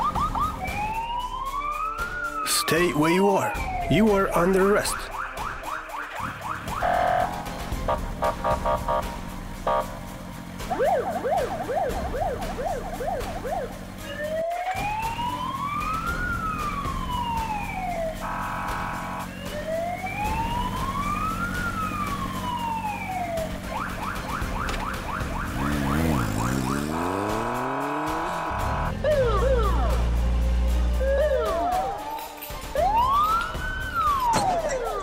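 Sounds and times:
police siren yelp and wail: 0:00.0 - 0:09.1, 0:10.6 - 0:30.2, 0:30.9 - 0:35.0
buzzing horn blast: 0:06.8 - 0:10.1, 0:18.2 - 0:19.3.

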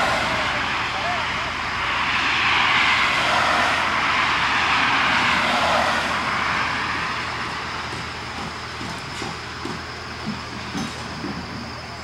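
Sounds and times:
car passing: 0:00.0 - 0:08.8.

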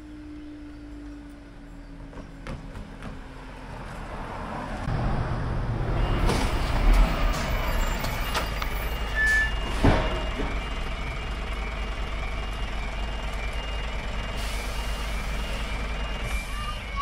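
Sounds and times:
lorry engine rumbling: 0:00.0 - 0:17.0
road traffic: 0:00.0 - 0:17.0
crossing alarm warning tone: 0:05.9 - 0:17.0.

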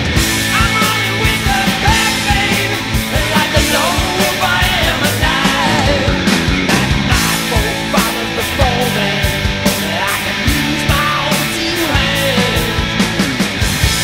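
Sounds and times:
rock music with sung vocals: 0:00.0 - 0:14.0
steady drum beat: 0:00.0 - 0:14.0.

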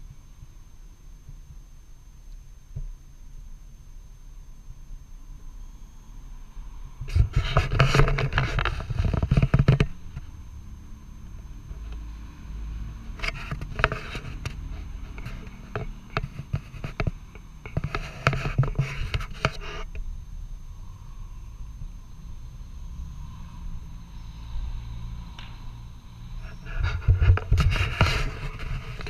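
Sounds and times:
camera handling scraping: 0:07.1 - 0:09.9, 0:13.2 - 0:19.9, 0:26.5 - 0:29.0.

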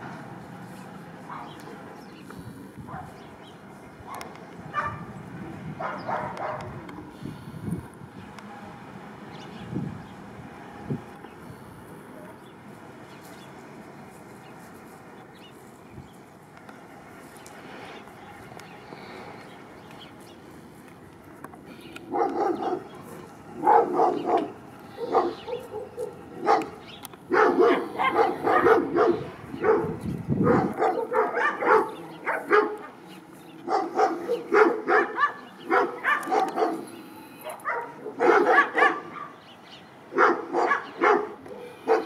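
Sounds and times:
dog barking: 0:01.3 - 0:01.6, 0:02.9 - 0:03.2, 0:04.1 - 0:05.1, 0:05.8 - 0:06.8, 0:22.1 - 0:22.9, 0:23.6 - 0:33.0, 0:33.6 - 0:39.4, 0:40.1 - 0:42.0.

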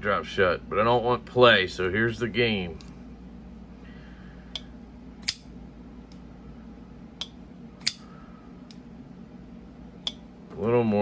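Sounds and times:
folding knife blade clicking: 0:05.2 - 0:05.5, 0:07.2 - 0:08.1.

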